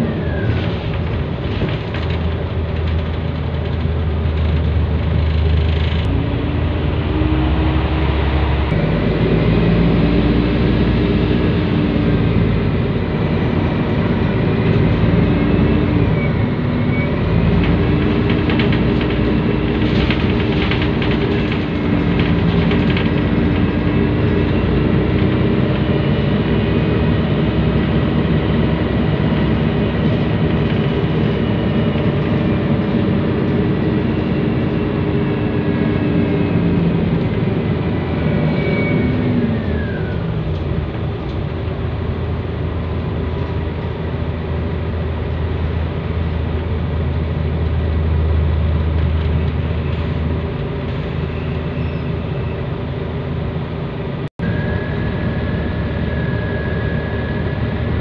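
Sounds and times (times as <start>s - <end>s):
bus diesel engine droning: 0.0s - 58.0s
turbo whine: 54.4s - 58.0s.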